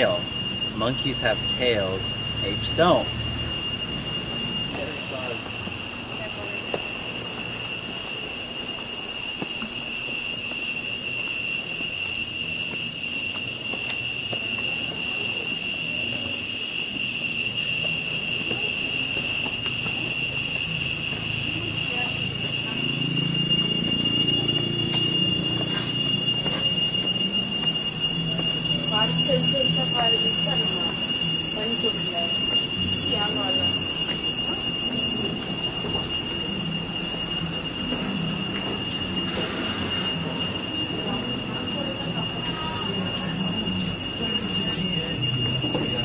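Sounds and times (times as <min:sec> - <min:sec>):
cicadas droning: 0:00.0 - 0:46.0
shrill insect chorus: 0:00.0 - 0:46.0
footsteps on stone steps: 0:13.7 - 0:14.6, 0:18.4 - 0:21.3, 0:25.7 - 0:27.8.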